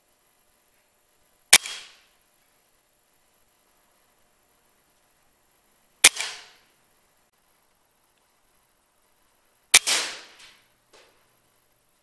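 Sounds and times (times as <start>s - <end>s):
air rifle shot: 1.5s - 2.0s, 6.0s - 6.6s, 9.7s - 10.6s.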